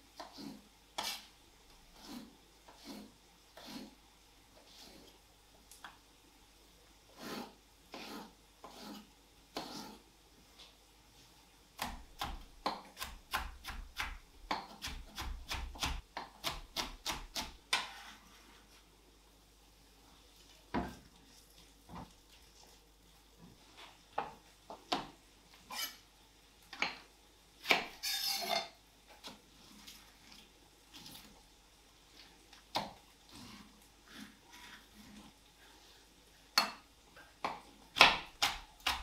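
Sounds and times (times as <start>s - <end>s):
knife scraping on board: 0.2s - 1.3s, 2.0s - 4.0s, 7.2s - 10.0s, 25.7s - 26.0s, 27.7s - 28.8s
knife chopping on wooden board: 11.8s - 18.0s, 37.4s - 39.0s.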